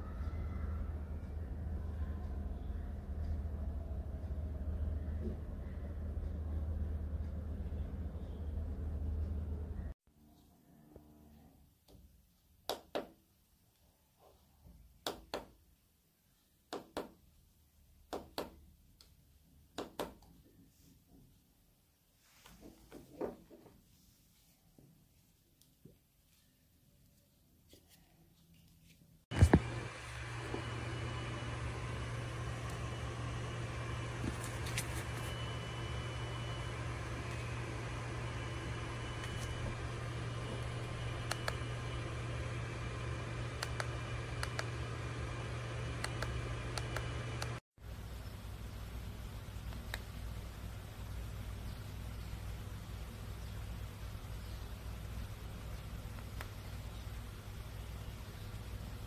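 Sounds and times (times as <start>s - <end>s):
low mechanical hum with hiss: 0.0s - 11.7s, 29.0s - 59.0s.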